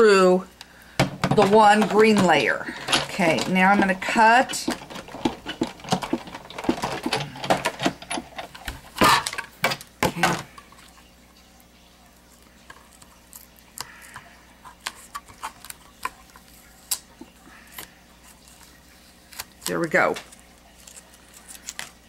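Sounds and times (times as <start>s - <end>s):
die-cutting machine clattering: 1.2s - 9.4s
handling card and metal die: 1.3s - 9.4s.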